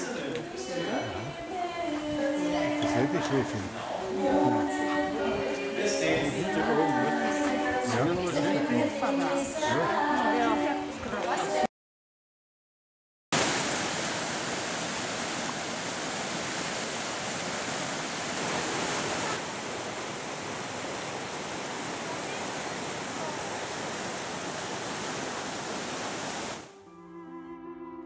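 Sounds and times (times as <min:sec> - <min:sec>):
mountain stream rushing: 0:00.0 - 0:11.6, 0:13.4 - 0:26.8
slow cello music: 0:26.7 - 0:28.0.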